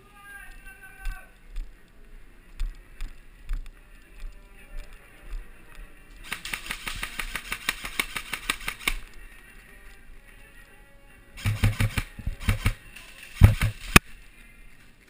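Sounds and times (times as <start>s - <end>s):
airsoft gun automatic fire: 6.2s - 9.1s, 11.4s - 14.0s.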